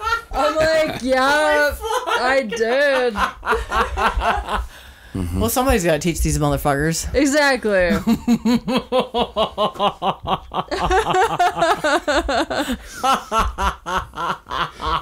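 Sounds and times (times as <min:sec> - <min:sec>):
people laughing hard: 0:00.0 - 0:04.8, 0:07.9 - 0:15.0.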